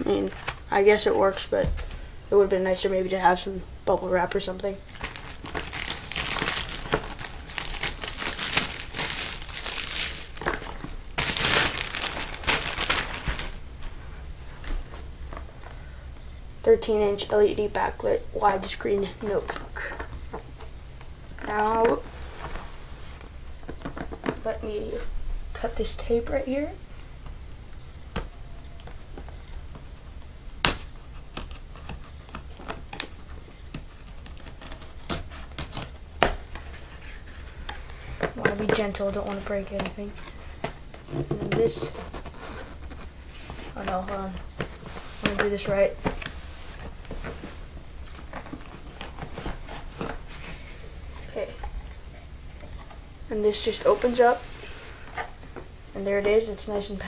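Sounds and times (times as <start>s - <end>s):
plastic wrapping crinkling: 4.8s - 13.6s.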